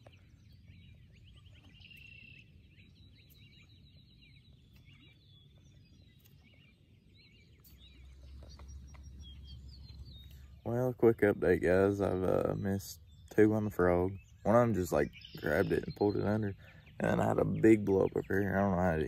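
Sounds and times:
songbirds chirping and trilling: 0.0s - 19.0s
low rumble: 7.2s - 18.5s.

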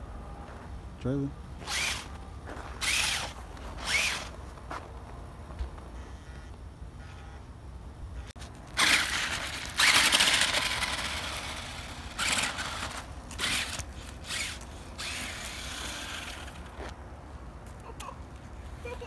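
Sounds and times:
toy truck motor whining: 1.6s - 2.1s, 2.8s - 4.3s, 8.8s - 16.8s.

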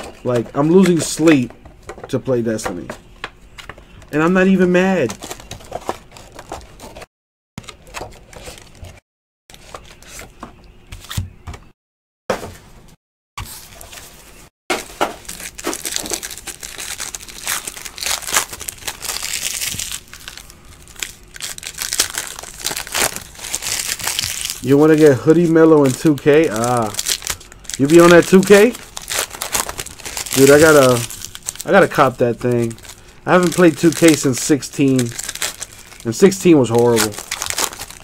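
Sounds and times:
foil wrapper crinkling and tearing: 14.8s - 38.0s.

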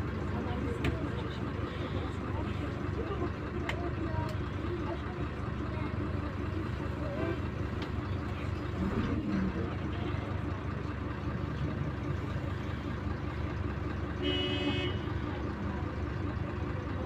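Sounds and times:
bus engine and road drone: 0.0s - 17.0s
vehicle horn toot: 14.2s - 15.2s.

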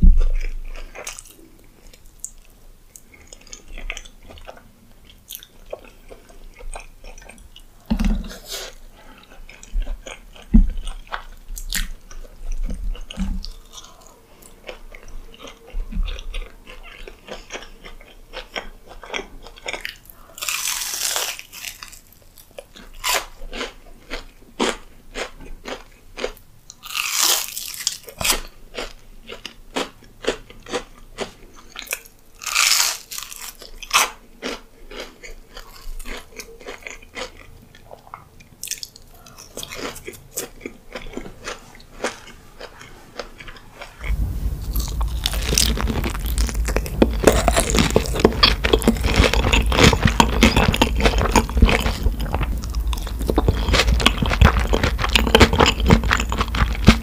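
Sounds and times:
chewing and wet mouth sounds: 0.2s - 57.0s
crunchy bites: 38.6s - 57.0s.

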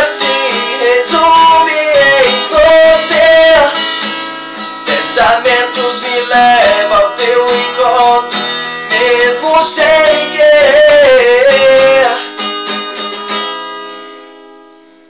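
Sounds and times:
person singing: 0.0s - 3.8s, 4.9s - 12.3s
acoustic guitar strumming: 0.0s - 15.0s.

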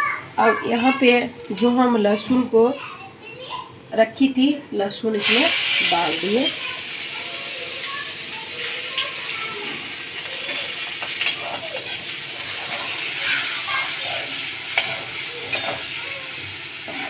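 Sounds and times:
garlic sizzling in hot oil: 5.2s - 17.0s
metal spoon clinking on pan: 11.0s - 12.0s, 14.8s - 15.9s.

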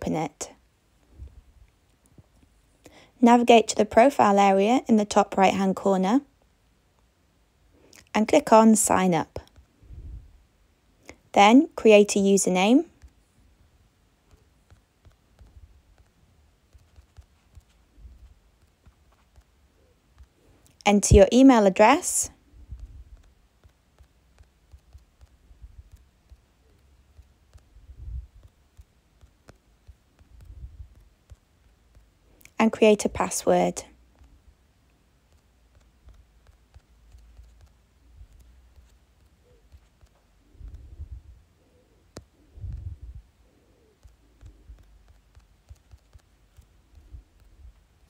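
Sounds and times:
typing on smartphone keyboard: 13.0s - 13.3s, 14.2s - 20.8s, 21.9s - 32.6s, 33.9s - 48.0s.

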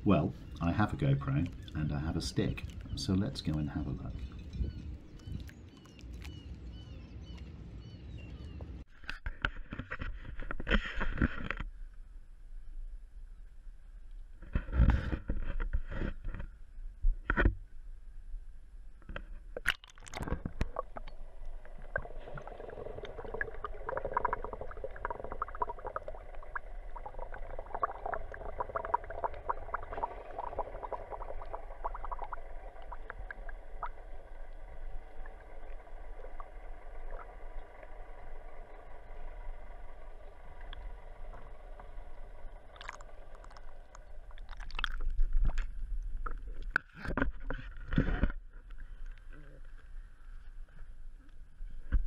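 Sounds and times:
water splashing: 0.0s - 6.7s, 19.6s - 46.8s
underwater clicks and bubbling: 0.4s - 6.6s, 19.0s - 49.9s.

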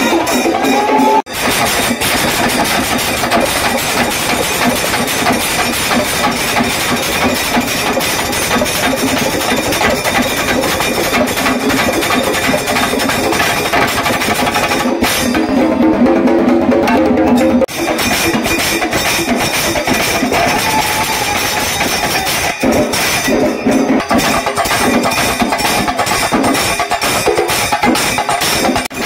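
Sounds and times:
hand cymbals clashing: 0.0s - 15.7s, 17.7s - 29.0s
drums beaten with sticks: 0.0s - 29.0s.

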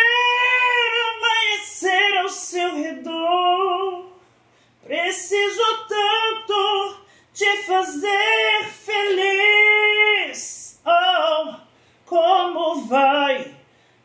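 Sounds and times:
man singing unaccompanied: 0.0s - 4.2s, 4.8s - 13.6s.

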